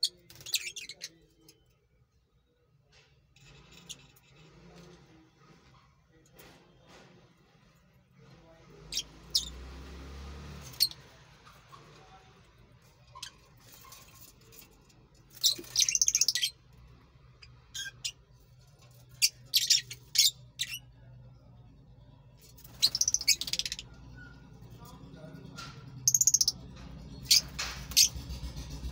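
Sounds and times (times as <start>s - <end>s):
lovebirds chirping: 15.4s - 16.6s, 19.2s - 20.8s, 22.6s - 24.3s.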